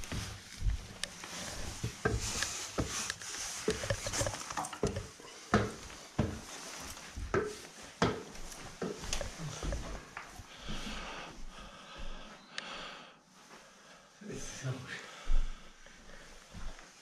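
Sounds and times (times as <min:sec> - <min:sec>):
footsteps on wooden stairs: 0:00.0 - 0:12.3.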